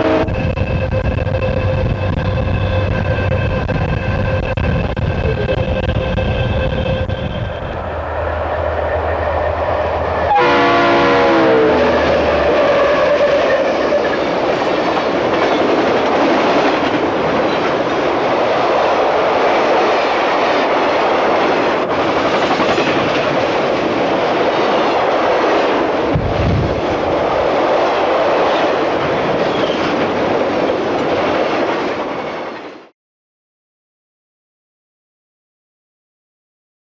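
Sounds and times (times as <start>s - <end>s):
train horn blast: 0.0s - 4.5s, 5.2s - 14.2s
freight cars rumbling on rails: 0.0s - 32.9s.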